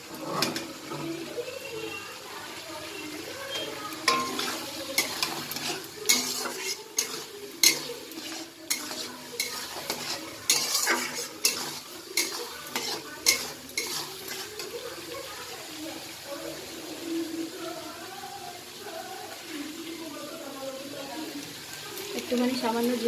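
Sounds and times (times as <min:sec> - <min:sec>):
metal spatula scraping a pan: 0:00.0 - 0:02.0, 0:03.0 - 0:16.7
curry sizzling in a pan: 0:00.0 - 0:23.0.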